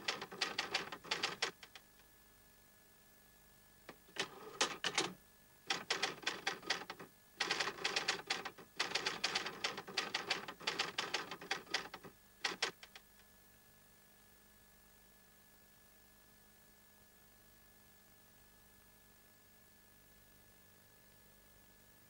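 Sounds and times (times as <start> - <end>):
typewriter keys clicking: 0.0 - 1.8, 4.2 - 13.0.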